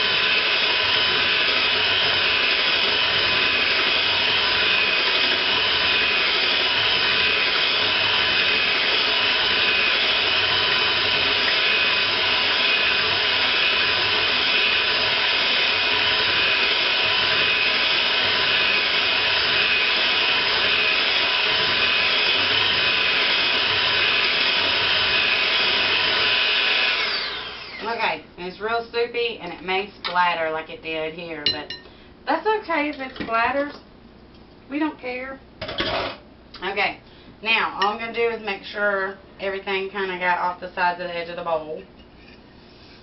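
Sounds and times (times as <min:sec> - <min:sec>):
electric hand mixer whirring: 0:00.0 - 0:28.2.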